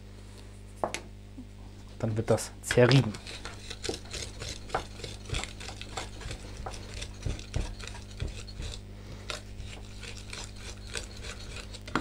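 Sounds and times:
knife scraping on wooden board: 0:02.9 - 0:12.0.

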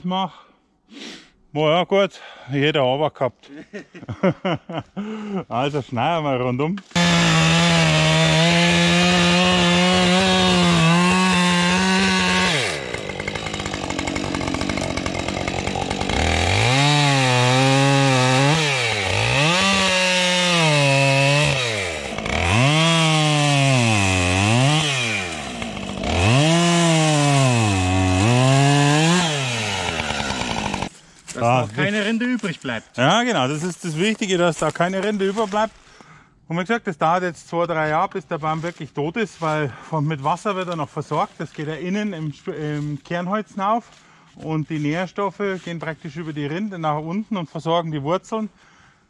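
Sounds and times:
chainsaw cutting tree bark: 0:06.9 - 0:32.1.

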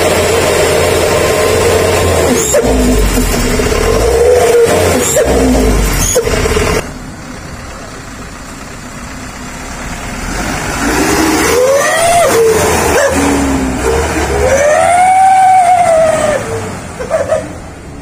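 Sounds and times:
truck engine low rumble: 0:00.0 - 0:18.0
howling truck exhaust whistle: 0:11.4 - 0:17.5.

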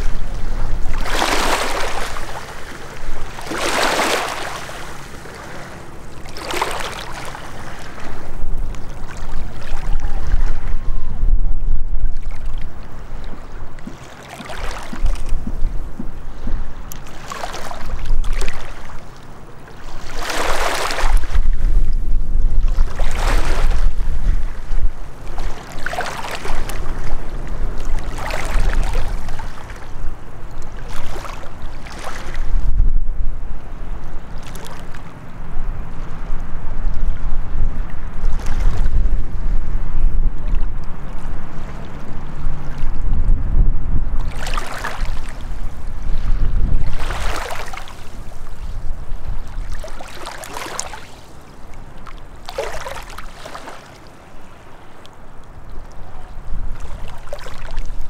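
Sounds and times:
waves lapping against rocks: 0:00.0 - 0:10.8, 0:12.0 - 0:19.2, 0:19.8 - 0:32.6, 0:34.4 - 0:35.0, 0:44.2 - 0:58.0
wind rumbling on microphone: 0:00.0 - 0:58.0.

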